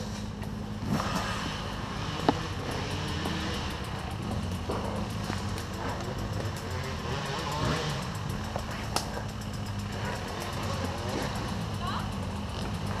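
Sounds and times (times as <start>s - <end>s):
dirt bike engine running: 0.0s - 13.0s.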